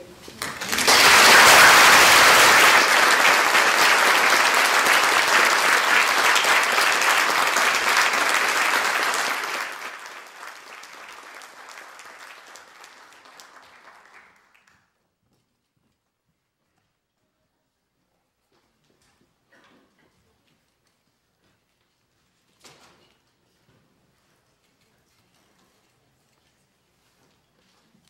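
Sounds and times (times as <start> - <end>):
audience applauding: 0.4 - 14.7.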